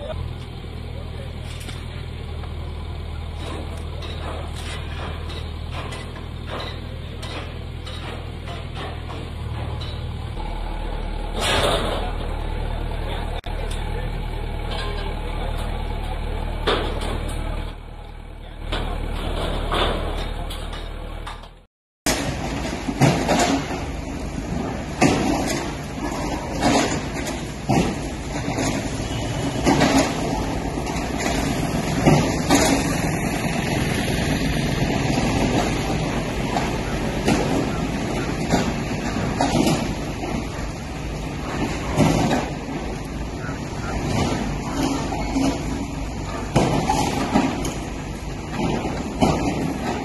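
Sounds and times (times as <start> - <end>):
backhoe diesel engine running: 0.0 - 50.0
loud demolition crash: 3.4 - 12.8, 22.1 - 50.0.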